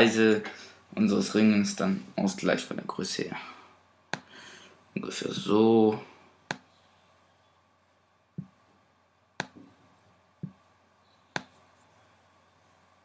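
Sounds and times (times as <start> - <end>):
computer mouse clicking: 11.3 - 11.6.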